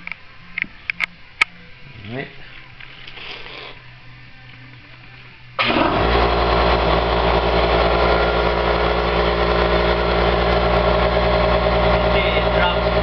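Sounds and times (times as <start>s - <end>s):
air compressor running: 5.6s - 13.0s.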